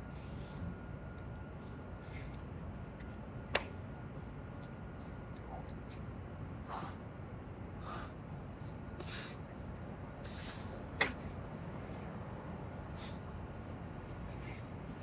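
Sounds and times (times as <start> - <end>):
man breathing hard: 0.1 - 0.8, 6.6 - 7.1, 7.8 - 8.2, 9.0 - 9.4, 10.2 - 10.8, 12.9 - 13.3.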